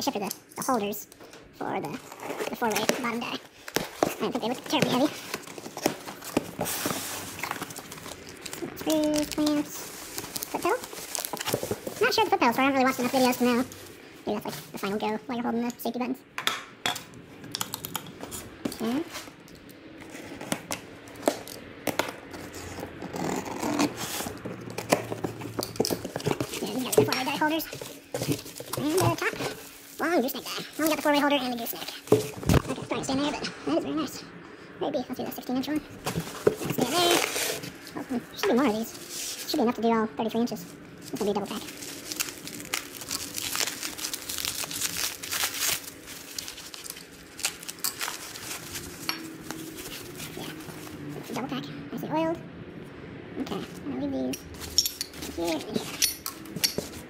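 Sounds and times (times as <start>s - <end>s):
bubble wrap crinkling and tearing: 1.9s - 14.9s, 20.1s - 32.8s, 36.0s - 39.6s, 41.0s - 51.1s
cardboard flaps scraping and rustling: 1.9s - 15.0s, 20.0s - 33.4s, 35.9s - 39.7s, 41.0s - 51.4s.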